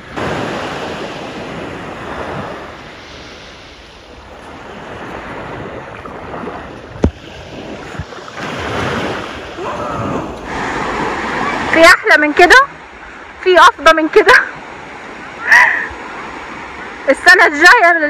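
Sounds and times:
wind buffeting microphone: 0:00.0 - 0:17.8
waves washing onto beach: 0:00.0 - 0:18.0.

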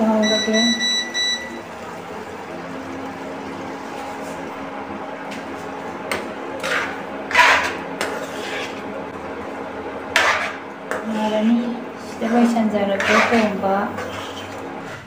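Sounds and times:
steady low hum: 0:00.0 - 0:15.0
spatula scraping and knocking pan: 0:06.1 - 0:08.8, 0:10.1 - 0:15.0.

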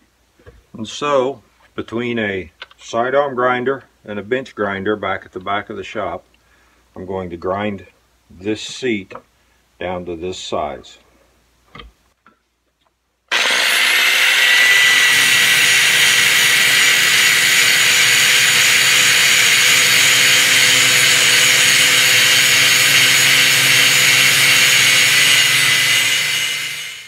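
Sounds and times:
angle grinder grinding metal: 0:13.3 - 0:27.0.

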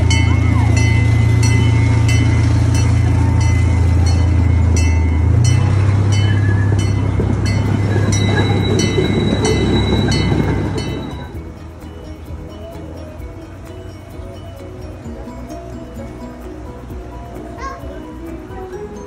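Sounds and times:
miniature train engine drone: 0:00.0 - 0:19.0
train bell ringing: 0:00.0 - 0:19.0.

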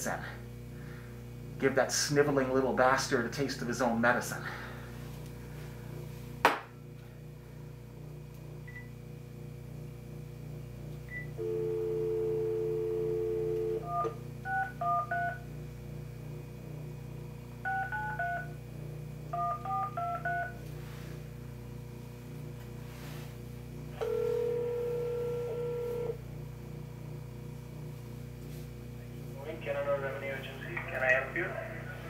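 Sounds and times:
two-note dial tone: 0:11.4 - 0:15.4, 0:19.3 - 0:20.6, 0:24.0 - 0:26.2
touch-tone dialling: 0:19.3 - 0:20.6.

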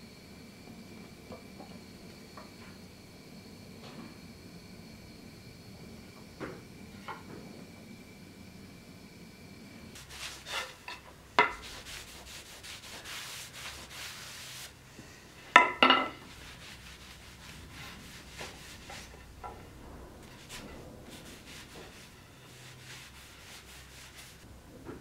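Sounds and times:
cloth rubbing on wooden handle: 0:10.0 - 0:14.8, 0:16.2 - 0:19.6, 0:20.2 - 0:24.4
wooden handle knocking on anvil: 0:15.5 - 0:16.2.

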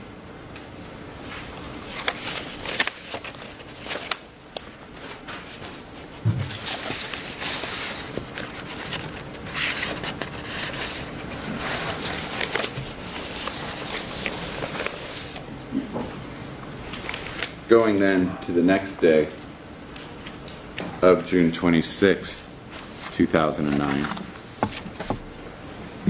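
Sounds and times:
papers rustling and sliding: 0:01.2 - 0:15.5, 0:22.7 - 0:25.2.

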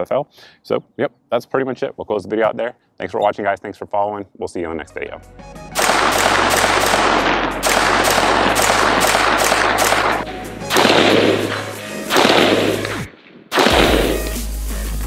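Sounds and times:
rifle shots echoing: 0:05.8 - 0:14.3.

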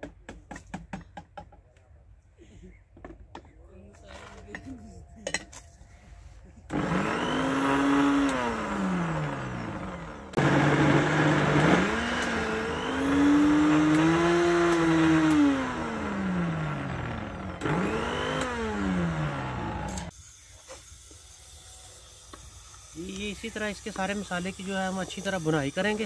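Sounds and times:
blender motor whining: 0:06.7 - 0:20.1.

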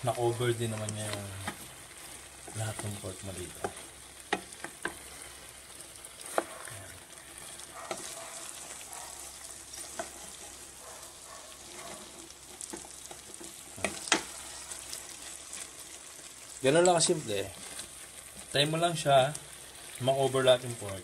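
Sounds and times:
food sizzling in a pan: 0:00.0 - 0:21.0
spatula stirring and scraping: 0:00.0 - 0:21.0
spatula tapping a pan: 0:02.4 - 0:05.0, 0:06.2 - 0:06.5, 0:09.8 - 0:10.3, 0:12.6 - 0:14.4.

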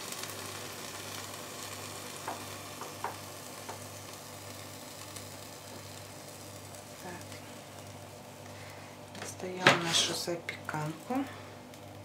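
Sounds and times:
food sizzling and crackling faintly: 0:00.0 - 0:12.0.

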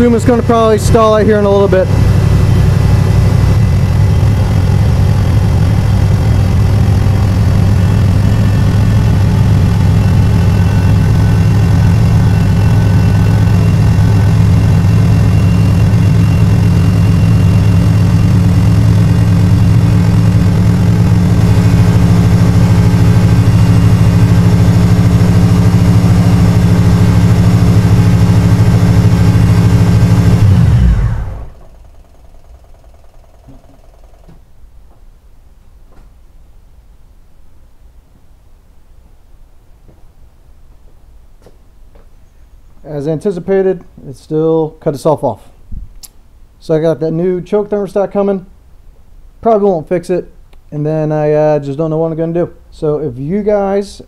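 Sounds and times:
car engine idling: 0:00.0 - 0:34.5.

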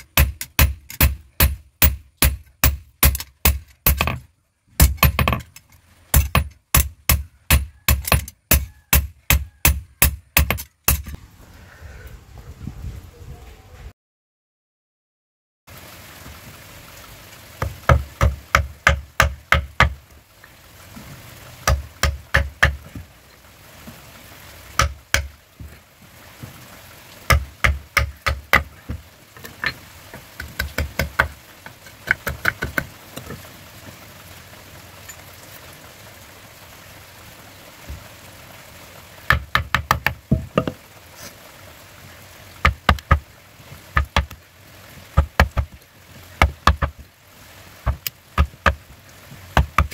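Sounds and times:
steel blade chopping wood: 0:00.0 - 0:04.2, 0:06.2 - 0:11.2.

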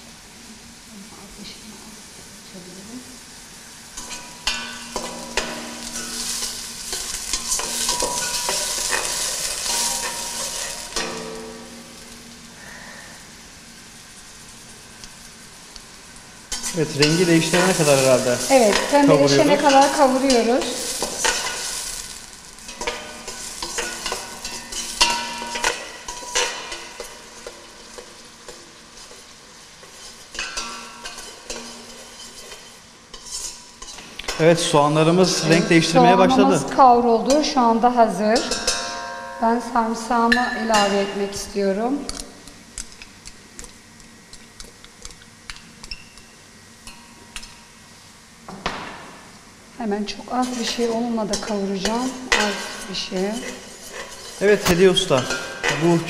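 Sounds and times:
onions sizzling in oil: 0:00.0 - 0:56.0
metal spoon scraping a pot: 0:22.7 - 0:34.0, 0:50.4 - 0:56.0.

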